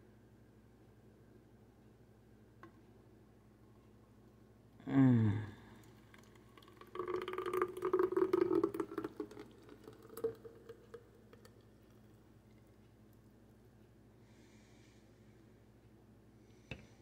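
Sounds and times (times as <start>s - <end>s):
smoothie glugging into bottle: 5.8s - 12.0s.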